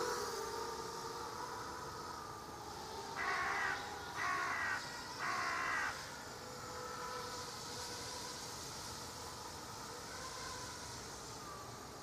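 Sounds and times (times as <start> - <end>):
quadcopter motors whining: 0.0 - 12.0
crow cawing: 3.2 - 6.0.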